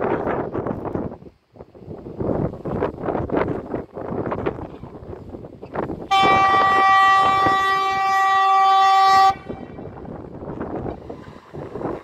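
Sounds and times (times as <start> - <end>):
wind on microphone: 0.0 - 12.0
train horn blast: 6.1 - 10.0.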